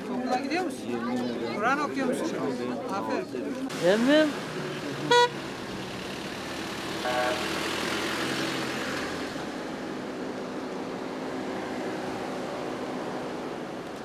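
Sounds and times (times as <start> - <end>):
cars driving on dirt road: 2.6 - 14.0.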